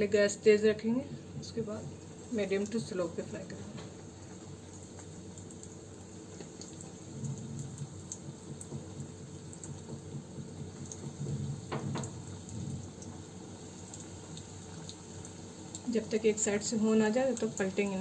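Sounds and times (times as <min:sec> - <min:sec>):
food deep-frying in hot oil: 0:00.0 - 0:18.0.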